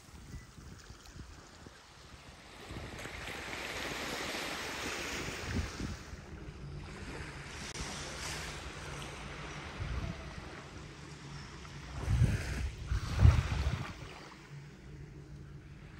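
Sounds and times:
wind rumbling on microphone: 0.0s - 8.9s, 9.7s - 11.0s, 11.8s - 14.4s
gentle surf on sandy beach: 0.0s - 15.9s.

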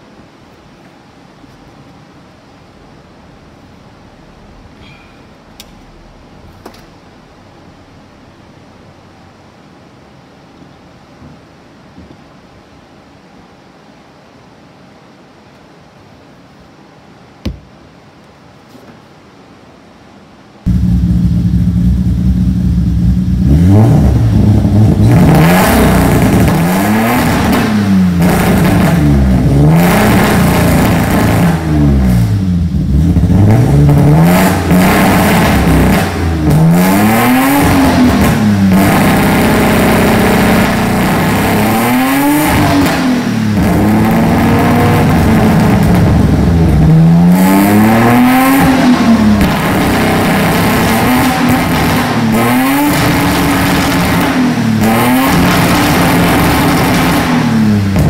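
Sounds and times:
car engine revving: 20.7s - 58.0s.

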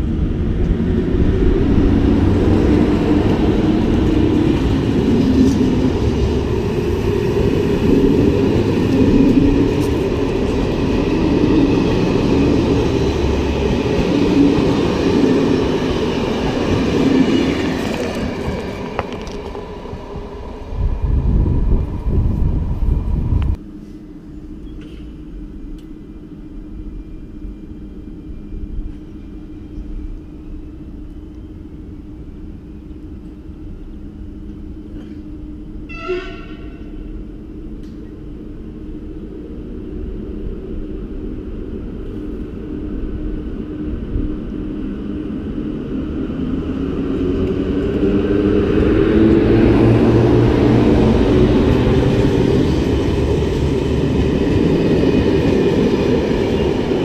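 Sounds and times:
train rumbling past: 0.0s - 57.0s
short train horn toot: 35.8s - 37.1s.

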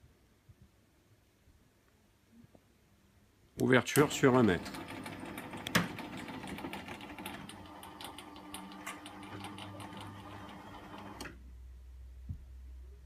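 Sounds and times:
garage door opener motor humming: 4.0s - 11.4s.

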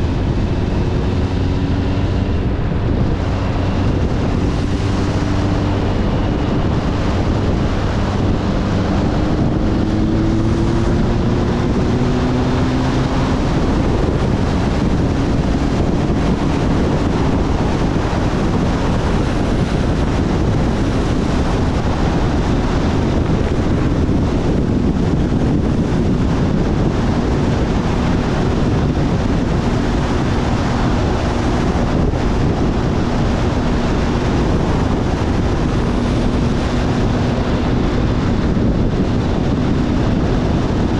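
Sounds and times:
motorcycle engine running: 0.0s - 40.9s
wind buffeting microphone: 0.0s - 40.9s.

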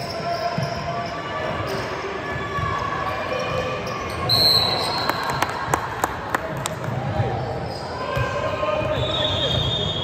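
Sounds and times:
murmur of spectators' voices: 0.0s - 10.0s
referee's whistle blast: 4.3s - 5.1s.

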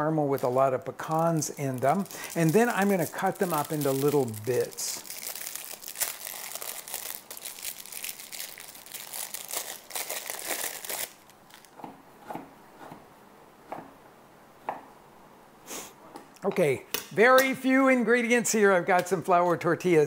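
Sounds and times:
cellophane wrapper crinkling: 0.3s - 11.8s.

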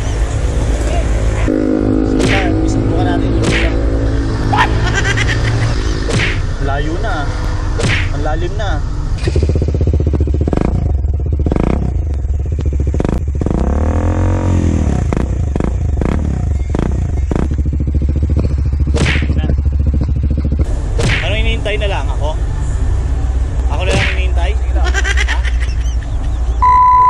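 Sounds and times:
throttle blip: 1.5s - 2.8s
motorcycle engine idling: 8.8s - 13.8s, 14.8s - 22.6s.

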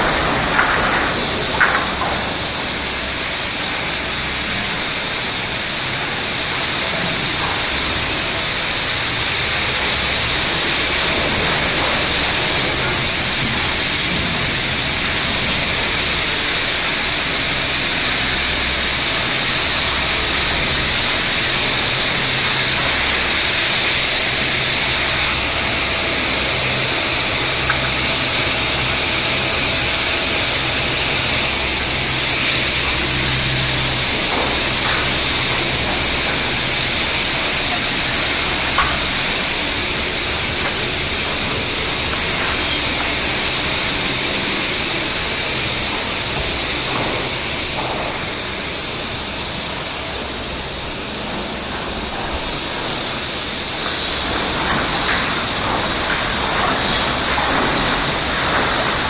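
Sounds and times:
sawmill machinery running: 0.0s - 59.0s.

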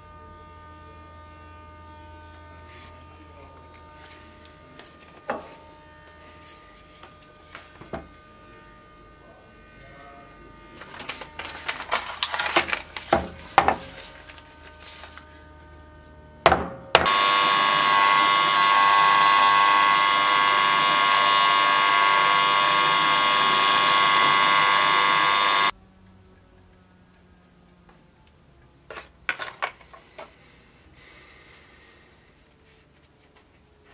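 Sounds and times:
metal parts clattering: 11.1s - 14.0s
drill press drilling metal: 17.0s - 25.7s.

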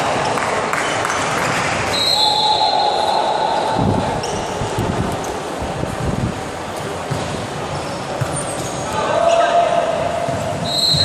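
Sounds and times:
referee's whistle: 1.9s - 3.7s, 10.6s - 11.0s
ball and feet thudding on court: 7.0s - 8.8s.

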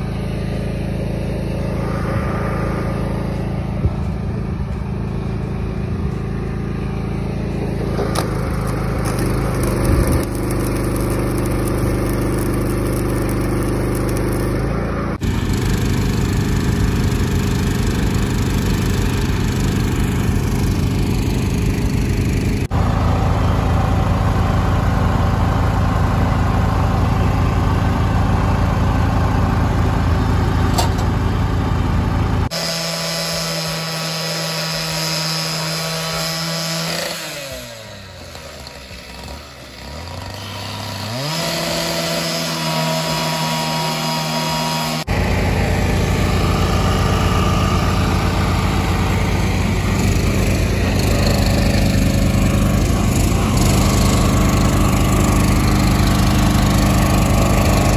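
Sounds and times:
single engine higher note: 0.0s - 11.4s
small petrol engines droning: 0.0s - 57.9s.

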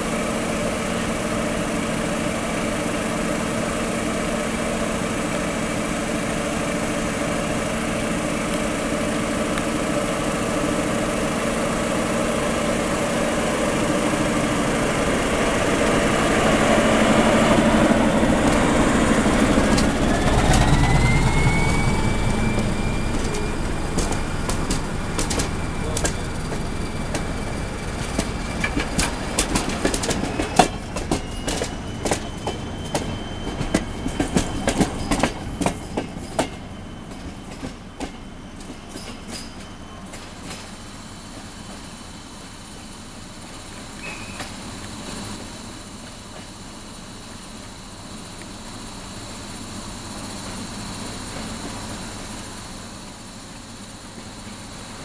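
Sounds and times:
diesel locomotive engine: 0.0s - 55.0s
train wheels clattering over rail joints: 23.1s - 40.7s.

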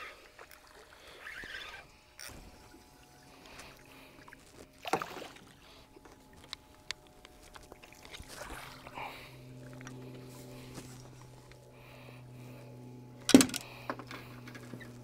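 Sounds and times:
faint steady hum: 0.0s - 15.0s
water sloshing in landing net: 3.5s - 6.4s, 7.4s - 11.3s
fish splashing at water surface: 3.8s - 5.7s.

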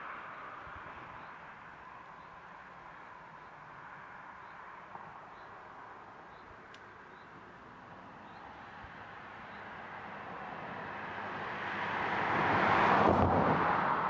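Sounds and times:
vehicle passing by: 8.6s - 14.0s.

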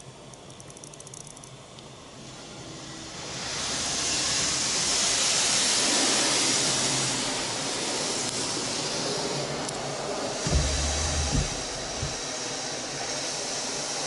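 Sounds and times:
water spray hitting car windows: 10.3s - 13.3s.

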